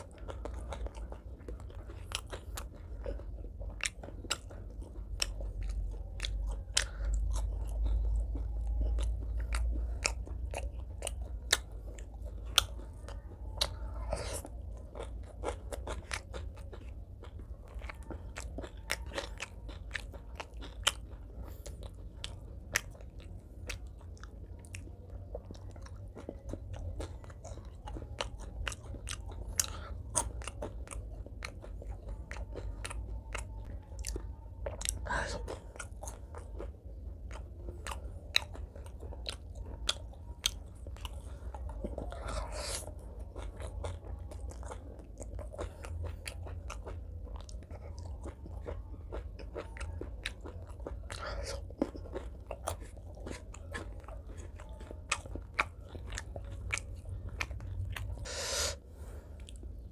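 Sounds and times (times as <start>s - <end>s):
crunchy chewing: 0.0s - 59.9s.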